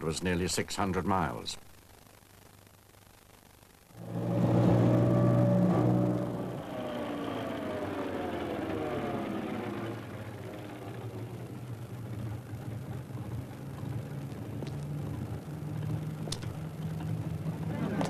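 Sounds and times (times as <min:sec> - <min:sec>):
bus engine slowing and idling: 0:04.0 - 0:18.0.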